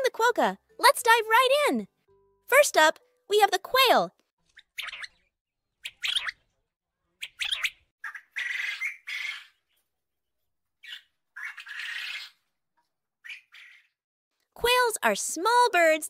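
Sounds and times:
quail calling: 0:07.2 - 0:09.6, 0:10.8 - 0:12.4.

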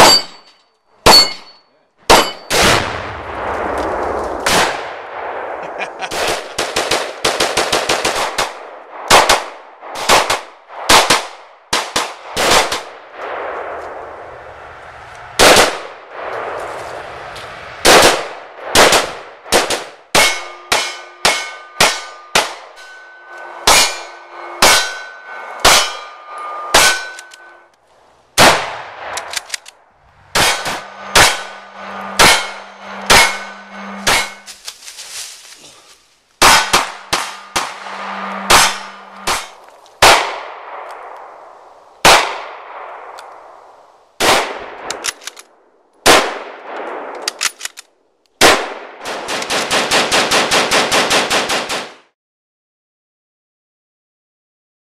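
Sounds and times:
metallic ringing of steel targets: 0:00.0 - 0:02.6, 0:20.1 - 0:27.7, 0:30.3 - 0:34.6, 0:36.4 - 0:39.7
gunshots: 0:02.1 - 0:14.4, 0:15.4 - 0:16.6, 0:17.8 - 0:27.6, 0:28.4 - 0:34.5, 0:36.4 - 0:41.4, 0:42.0 - 0:43.2, 0:44.2 - 0:45.3, 0:46.0 - 0:47.5, 0:48.4 - 0:52.1.

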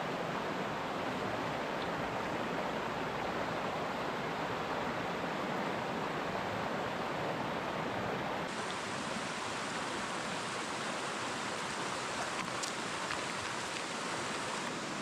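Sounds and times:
stream rushing over stones: 0:00.0 - 0:15.0
faint clicks: 0:12.1 - 0:14.7.

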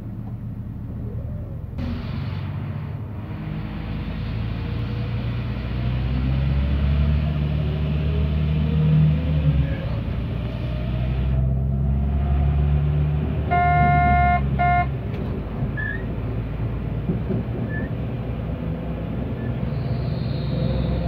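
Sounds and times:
train engine drone: 0:00.0 - 0:21.0
train horn blasts: 0:13.5 - 0:14.9.

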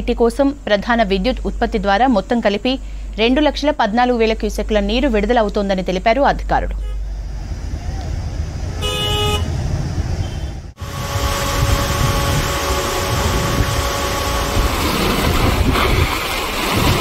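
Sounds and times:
road traffic rumble: 0:00.0 - 0:17.0
vehicle horn: 0:06.7 - 0:07.1, 0:08.8 - 0:09.6, 0:10.2 - 0:15.3
steady rushing noise: 0:07.0 - 0:17.0.

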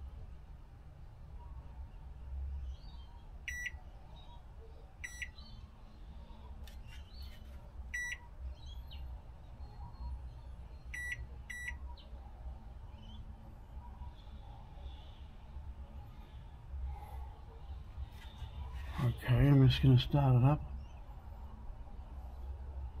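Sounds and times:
microwave keypad beeping: 0:03.5 - 0:03.8, 0:05.0 - 0:05.4, 0:07.9 - 0:08.2, 0:10.9 - 0:11.8.

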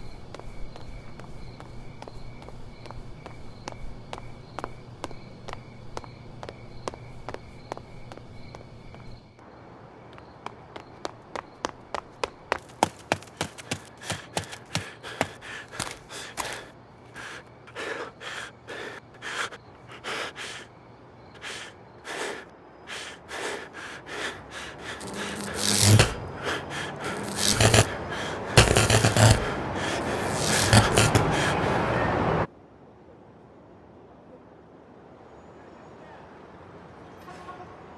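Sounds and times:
running footsteps: 0:10.4 - 0:20.6, 0:21.4 - 0:31.7
man panting: 0:12.9 - 0:20.7, 0:21.4 - 0:31.9.

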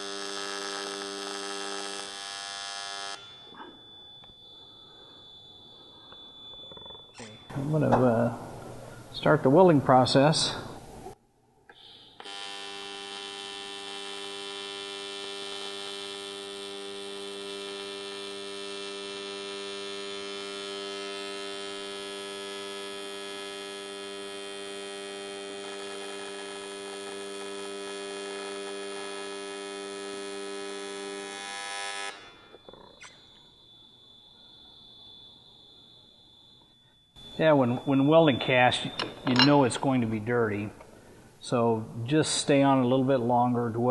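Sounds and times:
welding arc buzzing: 0:00.0 - 0:05.1, 0:11.7 - 0:40.2.

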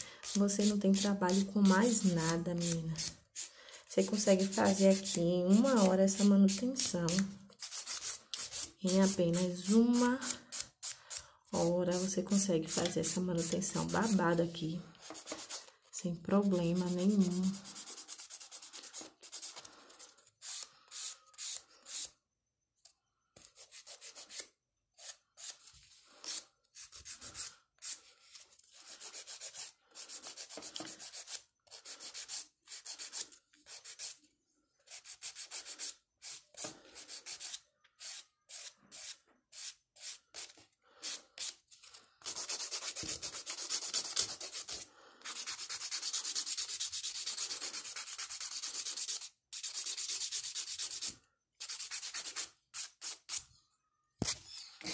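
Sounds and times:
nail file rasping on nails: 0:00.0 - 0:14.4, 0:16.4 - 0:19.6, 0:28.7 - 0:34.2, 0:34.9 - 0:36.4, 0:42.2 - 0:53.4.

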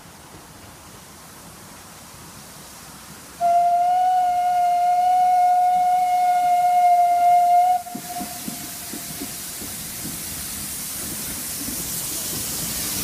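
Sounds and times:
steam locomotive whistle blast: 0:03.4 - 0:09.0.

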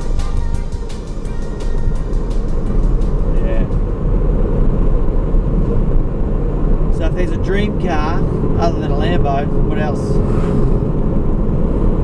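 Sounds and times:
music with steady beat: 0:00.0 - 0:04.2
car rumbling while driving: 0:00.0 - 0:12.0.

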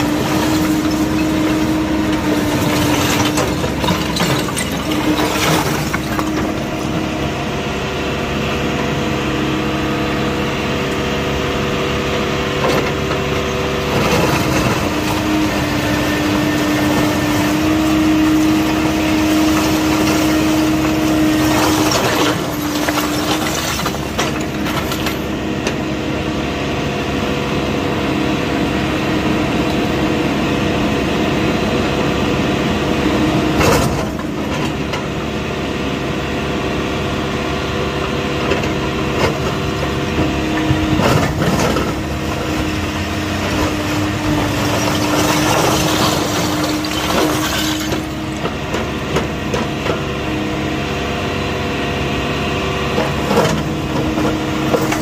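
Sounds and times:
bricks clattering and scraping: 0:00.0 - 0:07.1, 0:18.4 - 0:25.3, 0:40.7 - 0:48.5, 0:53.0 - 0:55.0
backhoe diesel engine running: 0:00.0 - 0:55.0.

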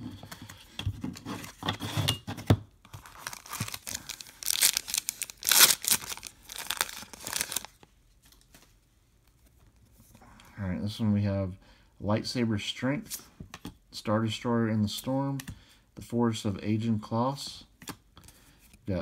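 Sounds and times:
foil wrapper crinkling: 0:03.0 - 0:07.8
foil wrapper tearing: 0:03.0 - 0:07.8.

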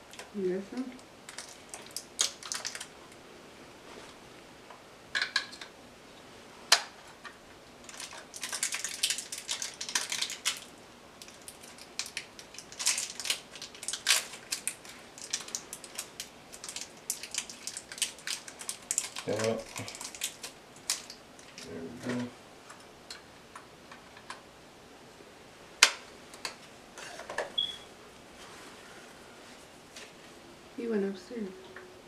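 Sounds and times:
packaging rustling: 0:01.2 - 0:03.0, 0:06.8 - 0:22.8.

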